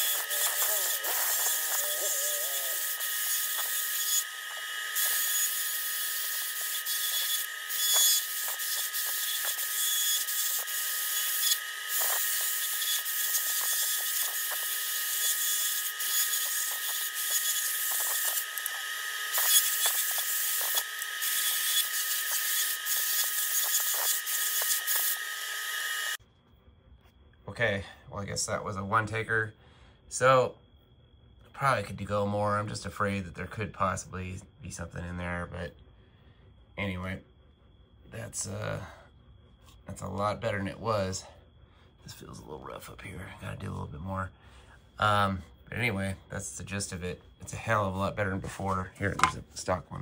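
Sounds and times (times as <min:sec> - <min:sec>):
die grinder whining on metal: 0:00.0 - 0:26.2.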